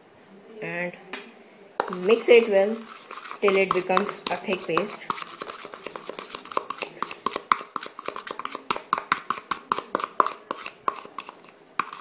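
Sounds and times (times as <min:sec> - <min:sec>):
spoon stirring paste in bowl: 0:01.8 - 0:12.0.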